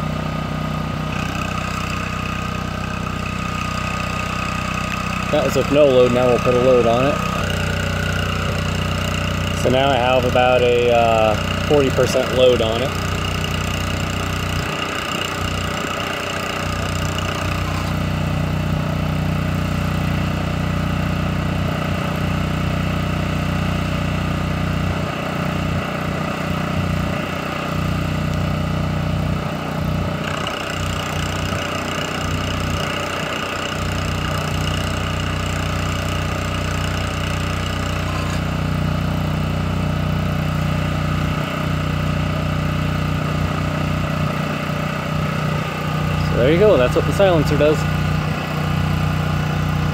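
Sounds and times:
generator exhaust running steadily: 0.0s - 49.9s.

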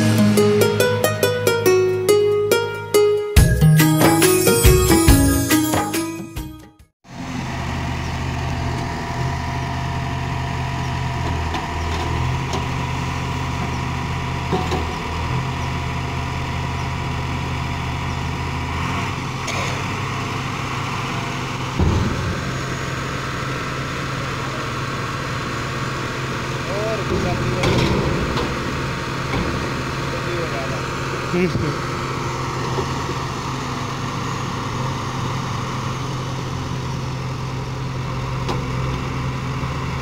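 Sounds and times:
diesel engines running: 0.0s - 6.3s, 7.1s - 40.0s
loud thump: 21.8s - 24.1s, 27.0s - 30.3s.

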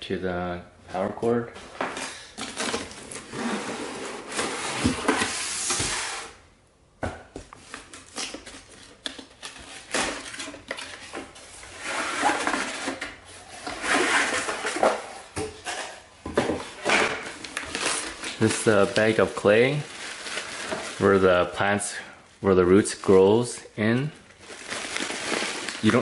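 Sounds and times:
cardboard scraping on plastic: 2.5s - 6.4s, 8.2s - 15.8s.

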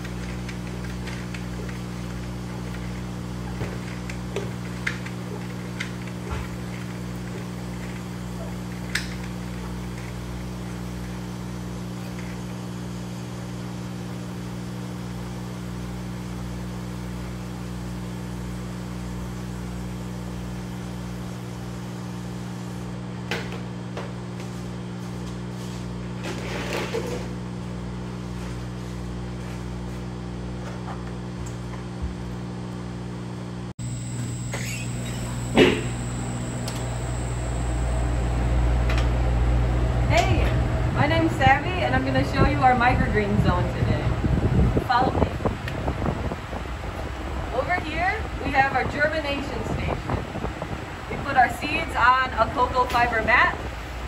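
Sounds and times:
machinery humming: 33.4s - 54.0s.

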